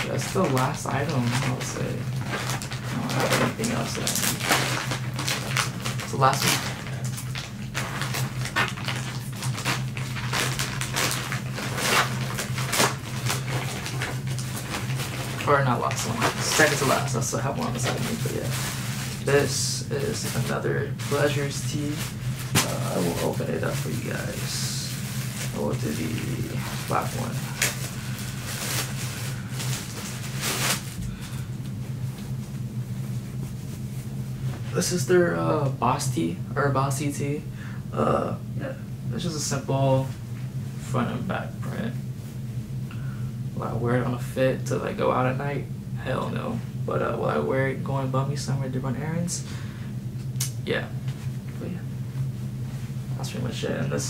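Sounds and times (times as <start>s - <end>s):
packaging rustling and crinkling: 0.0s - 34.0s
steady low hum: 0.0s - 54.0s.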